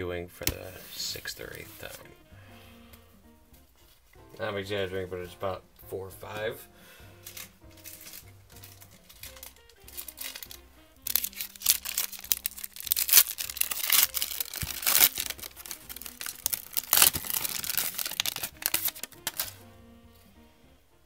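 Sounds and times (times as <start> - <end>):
foil crackling and crinkling: 7.2 - 19.6.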